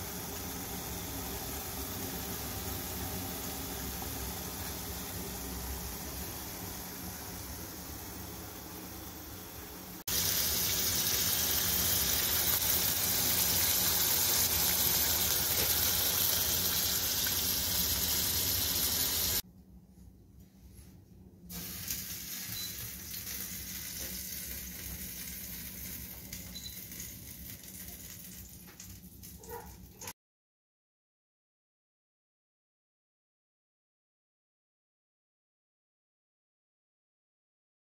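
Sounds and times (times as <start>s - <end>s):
cooking hiss from pan: 0.0s - 19.4s, 21.5s - 29.4s.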